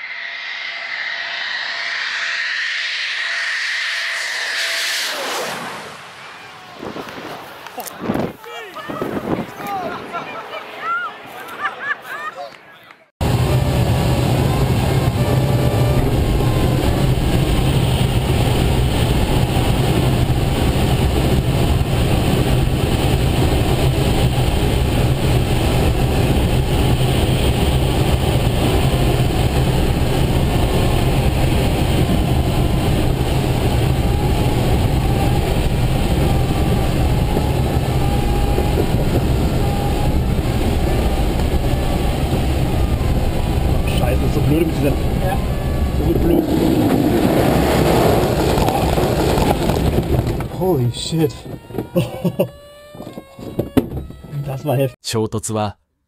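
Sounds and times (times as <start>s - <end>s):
rushing airflow: 0.0s - 10.2s, 13.2s - 52.1s
wind noise on microphone: 6.7s - 10.2s, 13.2s - 54.8s.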